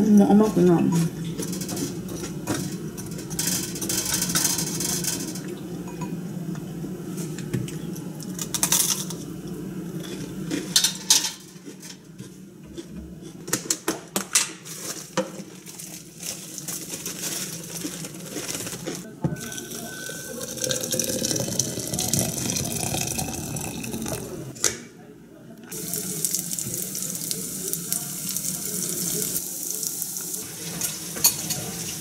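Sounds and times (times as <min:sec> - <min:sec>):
dishes and utensils clinking: 0:00.2 - 0:06.2, 0:07.9 - 0:09.3, 0:09.9 - 0:15.9, 0:30.6 - 0:32.0.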